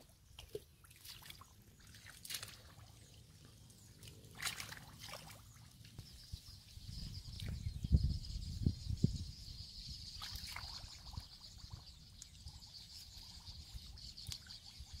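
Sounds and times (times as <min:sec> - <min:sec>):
splashing in muddy water: 0:00.0 - 0:06.0, 0:10.2 - 0:11.3.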